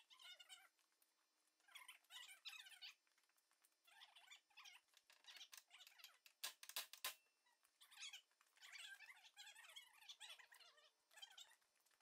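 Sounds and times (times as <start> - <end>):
faint bird chirping: 7.4 - 12.0.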